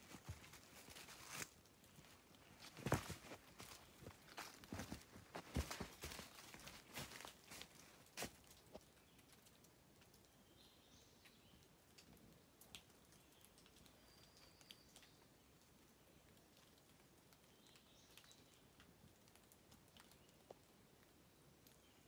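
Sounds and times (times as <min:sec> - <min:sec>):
footsteps on leaf litter: 0:00.0 - 0:08.4
faint bird chirps: 0:13.2 - 0:15.4.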